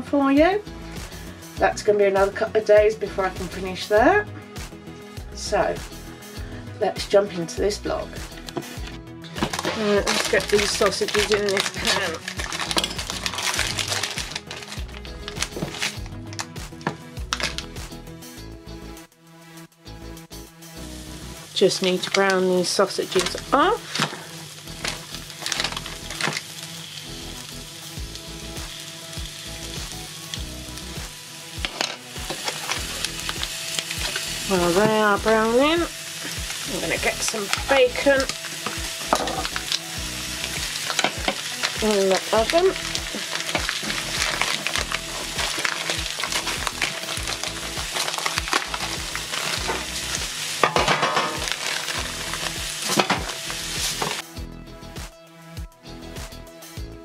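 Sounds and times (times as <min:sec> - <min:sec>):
sausages sizzling in a skillet: 0:07.8 - 0:17.8, 0:20.6 - 0:54.2
plastic packaging crinkling: 0:08.8 - 0:17.8, 0:21.8 - 0:27.0, 0:31.7 - 0:34.8, 0:36.2 - 0:54.2.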